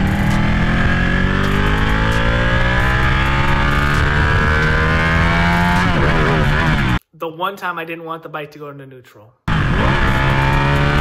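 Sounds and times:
motorcycle engine accelerating: 0.0s - 7.0s, 9.5s - 11.0s.

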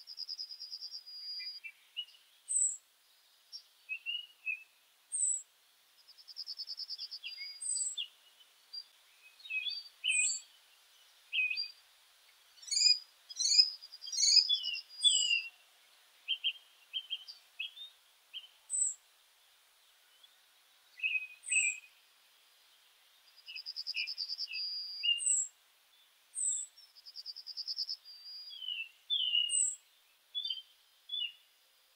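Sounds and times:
small songbirds chirping: 0.0s - 31.9s
rapid bird trills: 12.6s - 15.6s, 21.1s - 21.9s.

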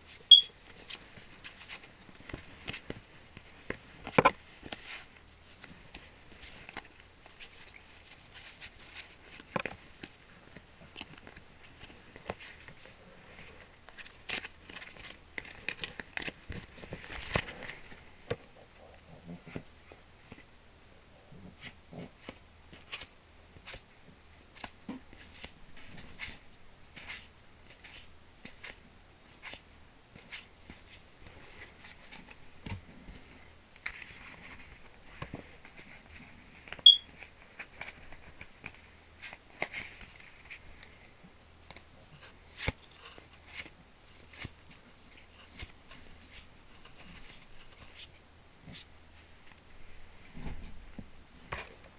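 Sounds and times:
trading cards flipped by hand: 41.6s - 44.7s.

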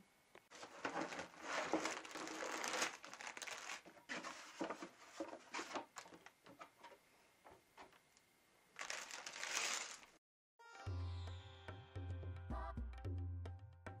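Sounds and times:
plastic bags crinkling: 0.5s - 6.4s, 8.8s - 10.2s.

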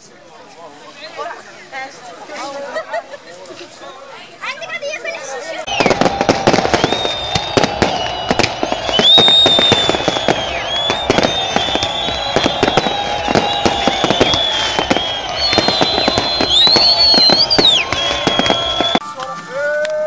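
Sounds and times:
fireworks cracking and banging: 5.7s - 19.0s
fireworks whistling: 5.7s - 19.0s.

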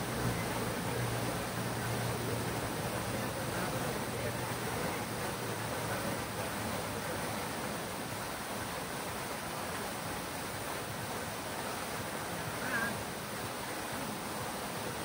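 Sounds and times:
fountain water splashing: 0.0s - 15.0s
brief high call: 12.6s - 13.0s.

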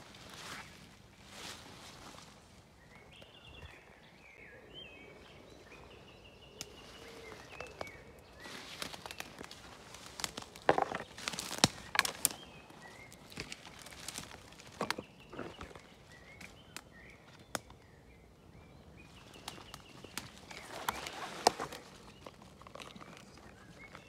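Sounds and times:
footsteps through undergrowth: 0.0s - 4.0s, 5.2s - 17.8s, 19.0s - 24.0s
twigs crackling: 5.1s - 17.9s, 18.9s - 24.0s.

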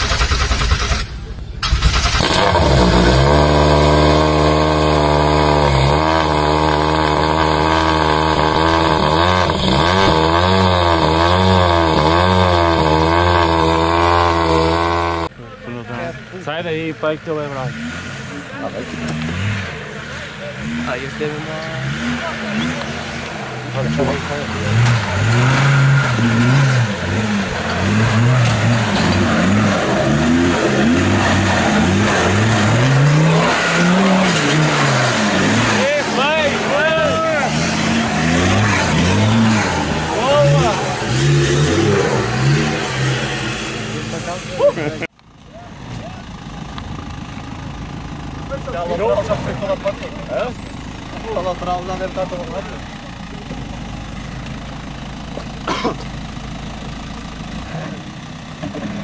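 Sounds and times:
loud engine revving: 0.0s - 15.3s, 16.6s - 45.1s.

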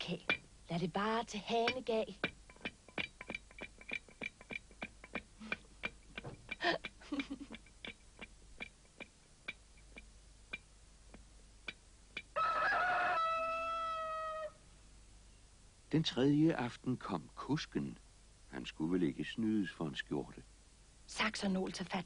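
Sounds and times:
rooster crowing: 12.3s - 14.6s.

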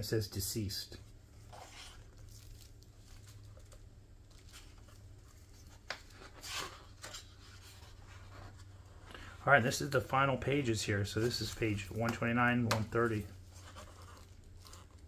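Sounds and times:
paper page rustling: 1.4s - 8.8s, 11.1s - 15.0s.

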